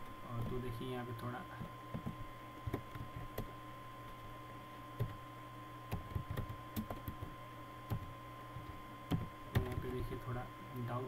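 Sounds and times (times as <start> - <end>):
steady electrical hum: 0.0 - 11.0
computer keyboard typing: 1.9 - 3.5, 5.9 - 7.3, 7.9 - 10.0.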